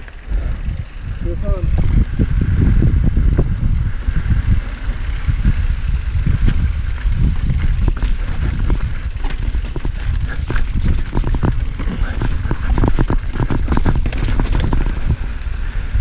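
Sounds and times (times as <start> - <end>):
wind and tyre rumble: 0.0 - 16.0
bike rattling over rocks: 4.1 - 15.7.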